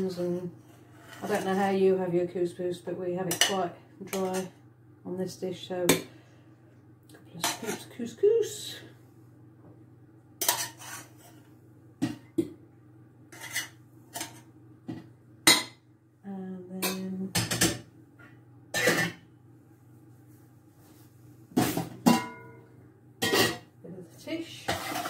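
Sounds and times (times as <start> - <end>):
metal spoon clinking on pans and plates: 10.4 - 11.3, 18.8 - 19.2, 23.2 - 23.7.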